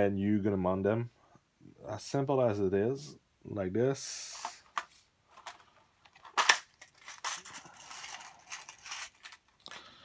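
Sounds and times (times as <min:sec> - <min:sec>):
plastic packets crinkling: 0:05.3 - 0:10.0.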